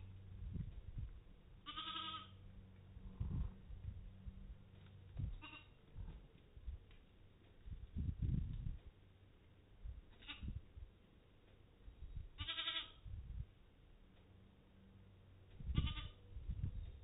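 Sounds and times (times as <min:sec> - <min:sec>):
soft low sounds: 0:00.0 - 0:01.7, 0:02.3 - 0:12.4
sheep bleating: 0:01.6 - 0:02.4, 0:05.4 - 0:05.8, 0:12.4 - 0:13.0, 0:15.8 - 0:16.2.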